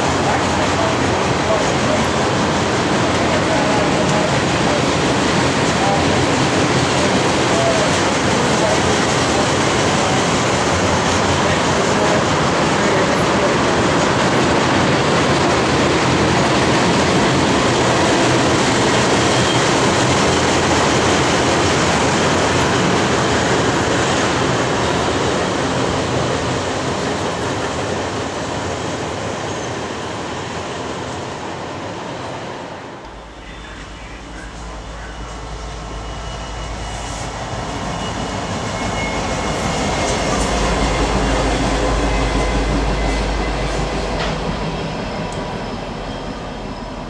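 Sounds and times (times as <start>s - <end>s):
freight train wheels rumbling: 0.0s - 47.0s.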